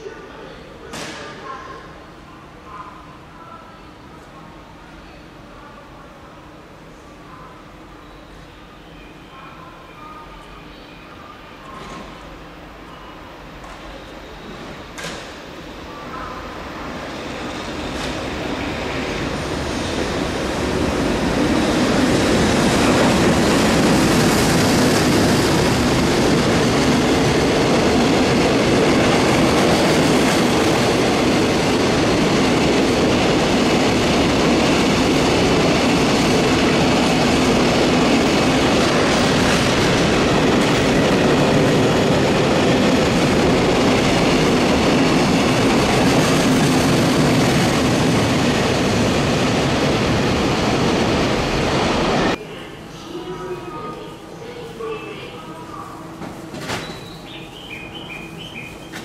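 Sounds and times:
train wheels on rails: 0:13.4 - 0:15.7, 0:16.6 - 0:52.4, 0:56.0 - 0:59.0.

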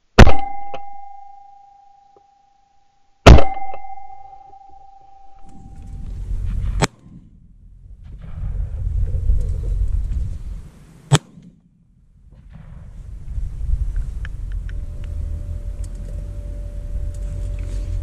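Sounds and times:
shotgun shots: 0:03.3 - 0:04.0, 0:11.1 - 0:13.0
wind buffeting microphone: 0:05.8 - 0:11.1, 0:11.8 - 0:18.0.

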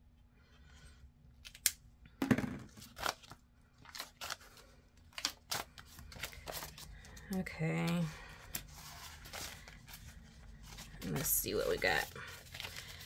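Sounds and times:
paper and plastic crinkling: 0:02.7 - 0:13.0.

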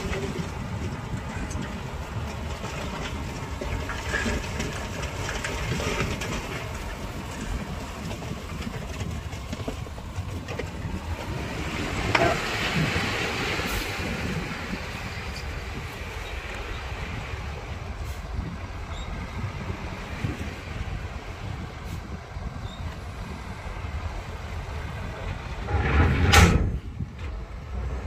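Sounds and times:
metal clanks and rattles: 0:00.0 - 0:11.4, 0:25.0 - 0:27.5
construction machinery engine rumble: 0:00.0 - 0:28.0.

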